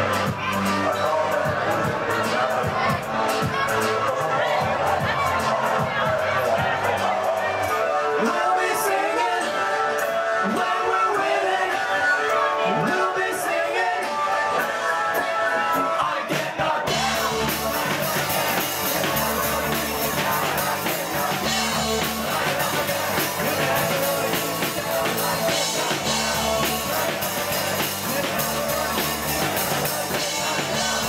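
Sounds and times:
bass guitar: 0.0 - 11.1, 15.5 - 31.0
drum kit: 0.0 - 31.0
person singing: 0.0 - 31.0
electric guitars: 16.9 - 31.0.

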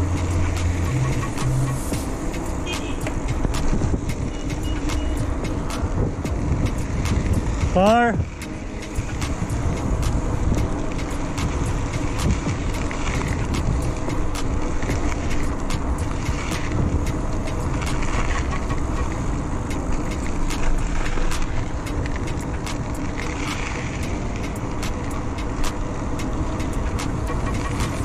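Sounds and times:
road and wind rumble: 0.0 - 28.0.

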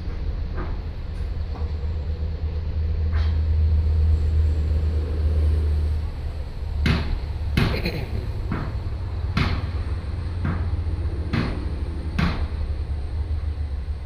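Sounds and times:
heavy machinery engine rumbling: 0.0 - 14.0
sharp knocks: 6.8 - 9.8, 10.4 - 12.6.

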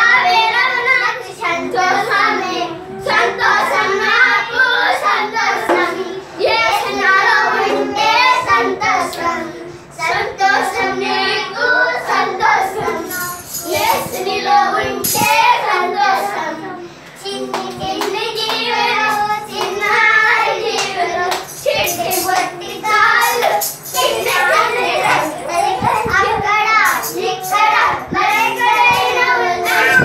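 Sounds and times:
children singing: 0.0 - 30.0
hand claps: 20.8 - 22.6.

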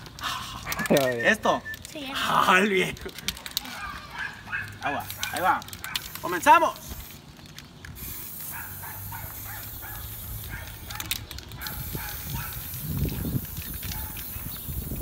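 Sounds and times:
spray paint can hissing: 4.6 - 15.0.

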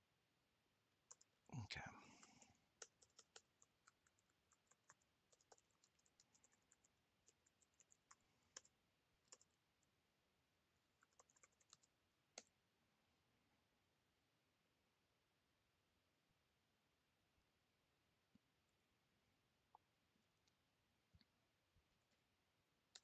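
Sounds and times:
keyboard typing: 1.1 - 1.3, 2.1 - 9.6, 11.0 - 12.5.

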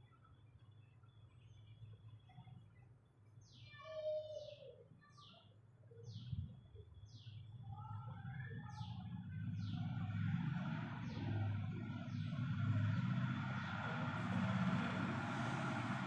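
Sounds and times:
low rumble: 7.7 - 16.0.

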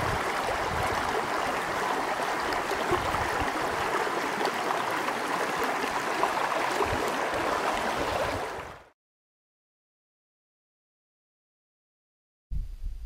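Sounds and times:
stream water running: 0.0 - 8.9.

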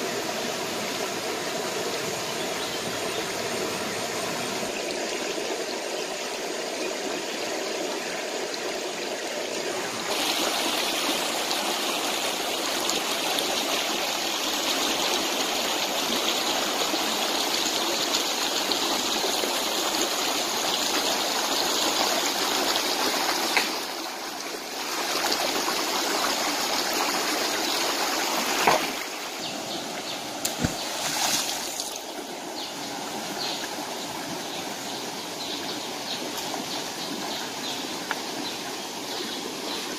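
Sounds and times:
stream water trickling over rocks: 0.0 - 39.9
sharp knocks or splashes: 28.6 - 29.1, 30.4 - 31.9.

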